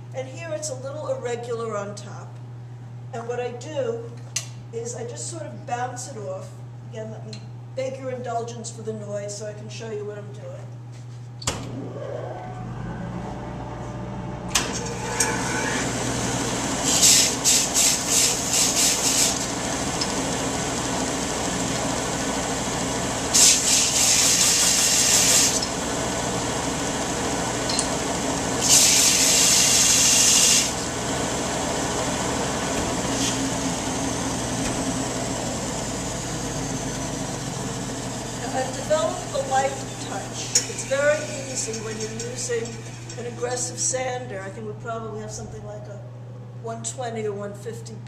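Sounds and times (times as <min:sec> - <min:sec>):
sander whine winding down: 0:11.7 - 0:16.9, 0:29.2 - 0:38.4
belt sander running: 0:11.7 - 0:43.9.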